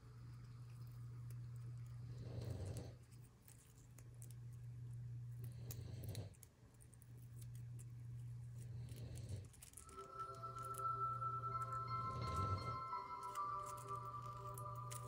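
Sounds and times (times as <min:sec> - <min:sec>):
low steady drone: 0:08.5 - 0:15.0.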